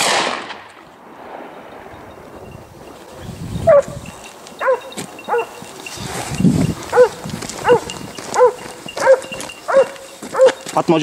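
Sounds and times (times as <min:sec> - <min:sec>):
hunting dog barking: 0:02.8 - 0:11.0.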